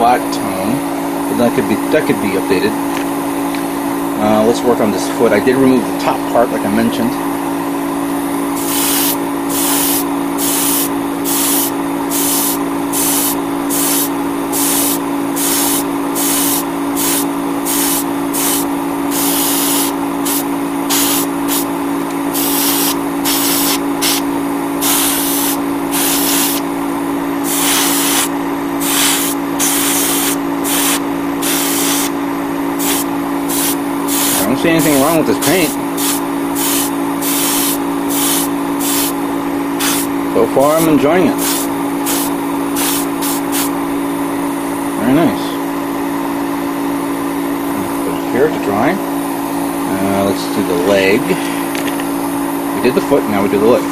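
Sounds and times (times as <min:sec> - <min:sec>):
steady motor hum: 0:00.0 - 0:53.9
airbrush spraying hiss: 0:08.5 - 0:21.7, 0:22.3 - 0:26.7, 0:27.4 - 0:32.2, 0:32.8 - 0:39.2, 0:39.8 - 0:40.1, 0:41.3 - 0:43.7.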